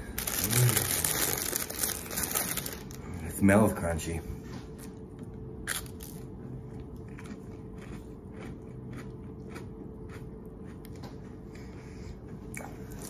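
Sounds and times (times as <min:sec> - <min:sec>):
crackers being bitten and chewed: 0:00.2 - 0:03.0, 0:05.6 - 0:11.7.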